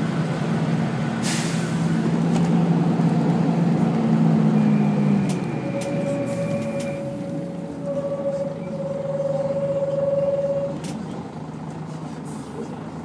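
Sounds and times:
diesel engine running: 0:00.0 - 0:13.0
bus brakes screeching: 0:01.2 - 0:02.2, 0:04.4 - 0:11.0.

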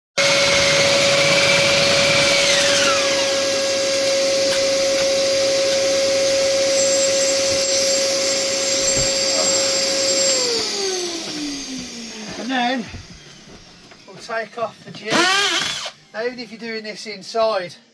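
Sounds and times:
core drill motor whine: 0:00.2 - 0:17.9
vacuum rushing noise: 0:00.3 - 0:14.2.

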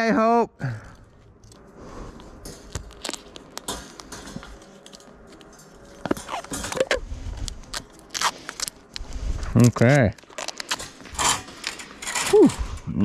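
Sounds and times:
duct tape ripping off the roll: 0:06.1 - 0:09.0, 0:09.6 - 0:11.0.

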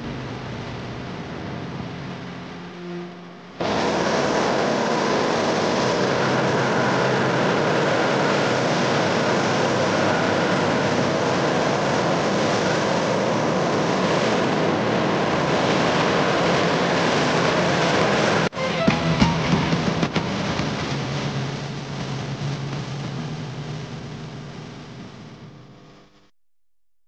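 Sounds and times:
gas torch flame rushing: 0:03.6 - 0:12.7.

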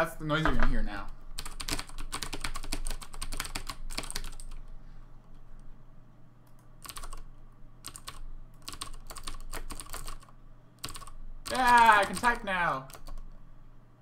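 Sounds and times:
clicky keyboard typing: 0:01.4 - 0:04.6, 0:06.4 - 0:13.4.

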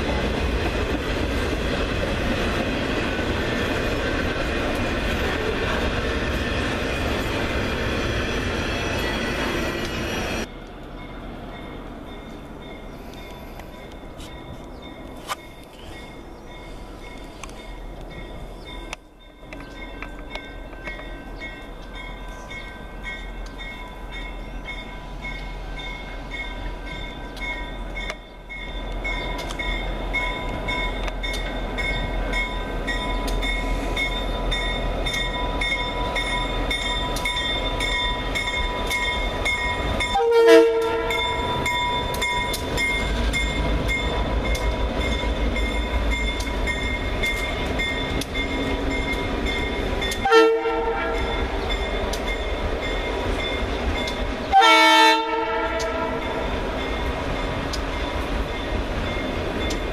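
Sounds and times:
diesel locomotive rumbling: 0:00.0 - 0:59.9
train horn blast: 0:40.1 - 0:41.5, 0:50.1 - 0:51.6, 0:54.5 - 0:56.5.

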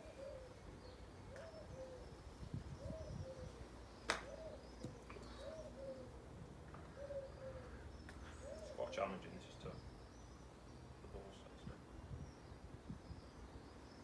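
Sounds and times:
pigeon cooing: 0:00.0 - 0:00.7, 0:01.3 - 0:02.1, 0:02.8 - 0:03.6, 0:04.2 - 0:06.2, 0:06.8 - 0:09.0.

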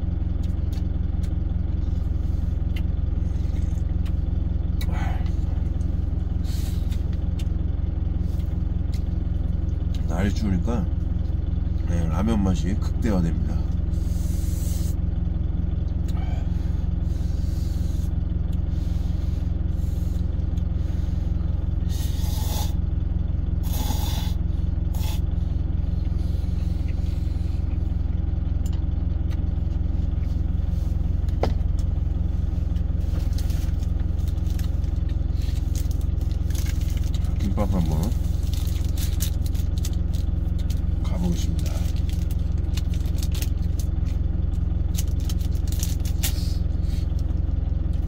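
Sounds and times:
truck engine idling: 0:00.0 - 0:48.0
plastic wrapper crinkling: 0:38.4 - 0:40.8.

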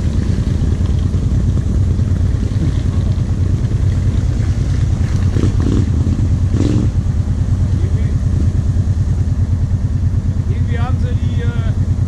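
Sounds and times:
atv engine idling: 0:00.0 - 0:12.0.

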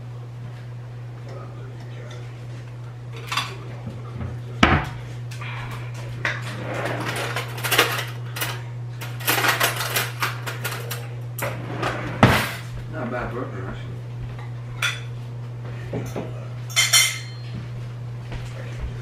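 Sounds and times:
steady low hum: 0:00.0 - 0:19.0
plates and cutlery clinking: 0:06.2 - 0:12.8, 0:14.4 - 0:15.2, 0:15.9 - 0:17.7.

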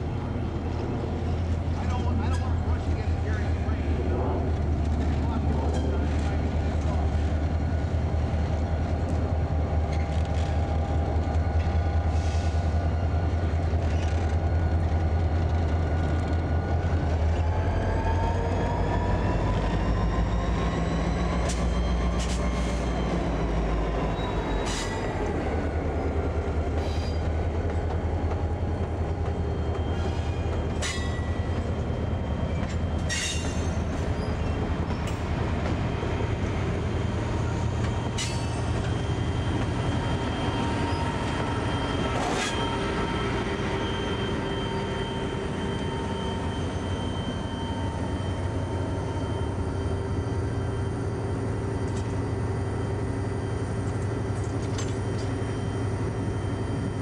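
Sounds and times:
locomotive engine drone: 0:00.0 - 0:57.0
wheel squeals: 0:37.4 - 0:51.2.

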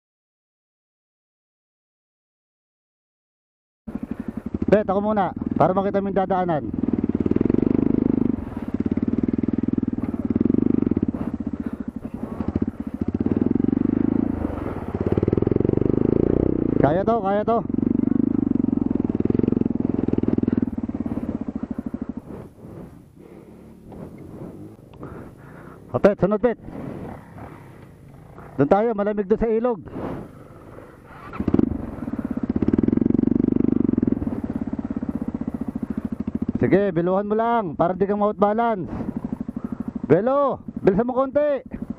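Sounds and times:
dirt bike engine revving: 0:03.9 - 0:41.9
small motorcycle engine pulling: 0:06.6 - 0:17.0, 0:29.9 - 0:36.8.

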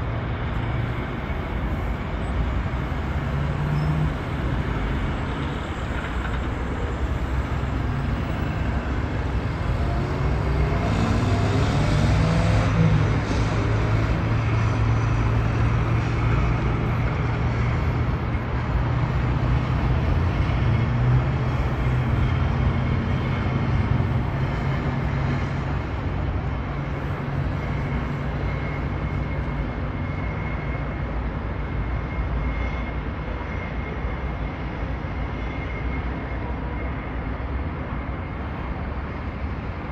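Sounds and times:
road traffic drone: 0:00.0 - 0:39.9
engine rising in pitch: 0:09.4 - 0:15.4.

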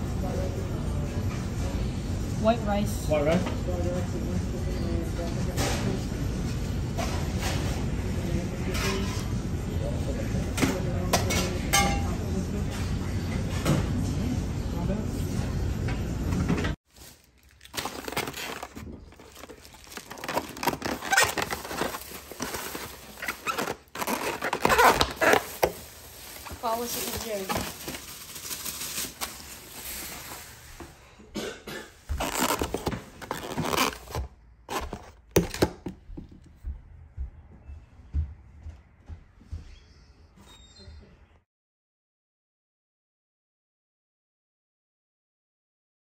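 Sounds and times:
restaurant hubbub: 0:00.0 - 0:35.1
foam container crackling: 0:16.9 - 0:30.6.

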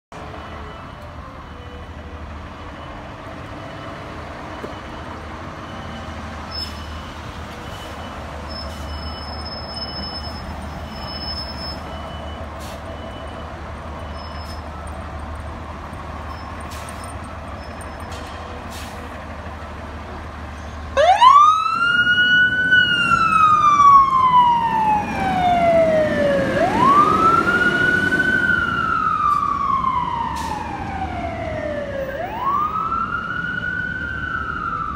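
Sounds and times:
fire engine rumbling: 0:00.1 - 0:34.9
siren wailing: 0:21.0 - 0:34.9.

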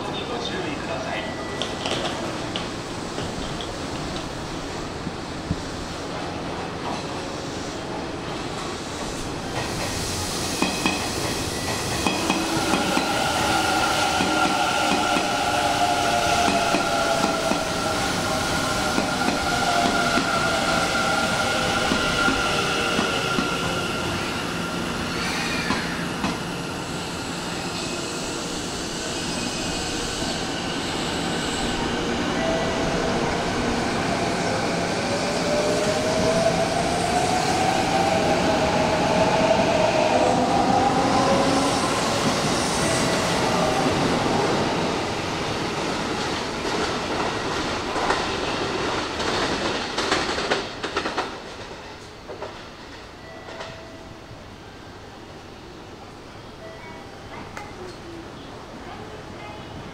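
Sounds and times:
train wheels clacking on rails: 0:08.6 - 0:17.9, 0:46.1 - 0:53.8.

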